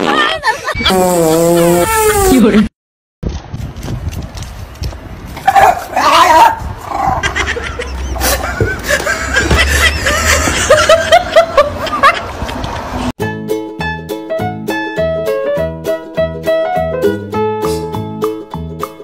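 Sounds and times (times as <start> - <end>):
person laughing: 0.0 - 2.7, 7.1 - 12.8.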